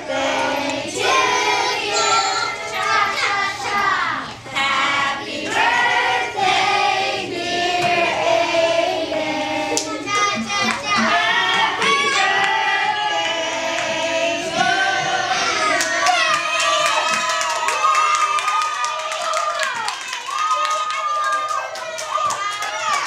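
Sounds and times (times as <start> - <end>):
children singing in chorus: 0.0 - 17.2.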